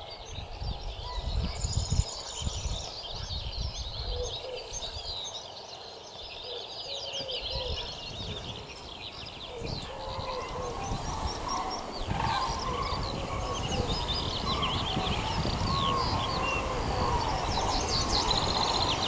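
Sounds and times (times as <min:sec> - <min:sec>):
songbirds twittering: 0:00.0 - 0:19.0
cranes trumpeting: 0:09.8 - 0:19.0.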